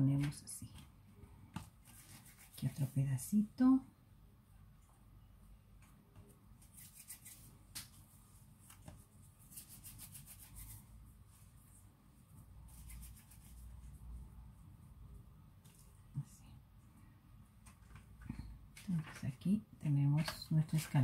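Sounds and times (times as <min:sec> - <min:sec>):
hands rubbing dough: 0:01.5 - 0:03.2, 0:06.5 - 0:14.2.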